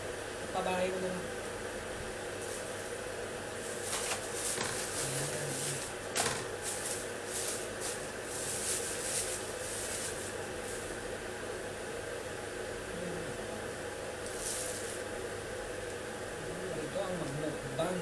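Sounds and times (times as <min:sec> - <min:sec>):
plastic bag and paper rustling: 0:03.6 - 0:11.0, 0:14.3 - 0:15.1.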